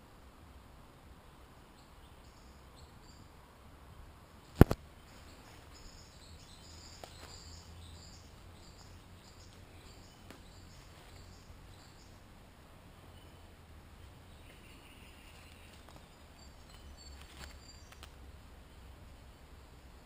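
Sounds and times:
birds chirping: 4.4 - 20.0.

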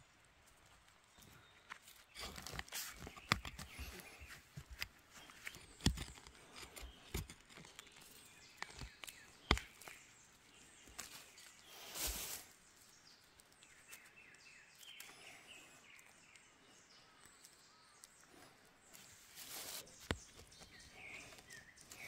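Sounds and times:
leaves rustling: 0.0 - 15.4, 17.4 - 22.0
hand hoe scraping soil: 2.0 - 10.0, 10.8 - 12.6, 19.0 - 22.0.

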